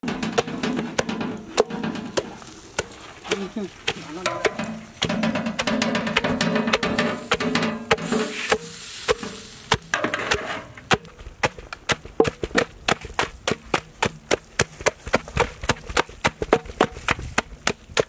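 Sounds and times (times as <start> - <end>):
wooden masher thudding in metal pot: 0.0 - 2.4, 3.9 - 11.1.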